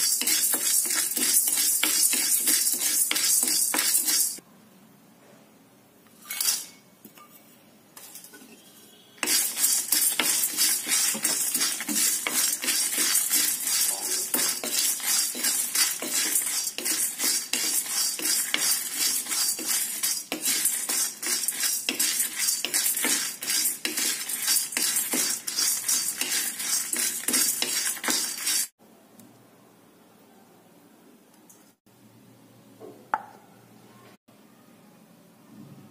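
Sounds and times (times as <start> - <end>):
dried chillies rattling into pan: 0.0 - 4.4, 9.2 - 28.7
wooden spatula scraping metal pan: 0.0 - 4.4, 8.4 - 28.7.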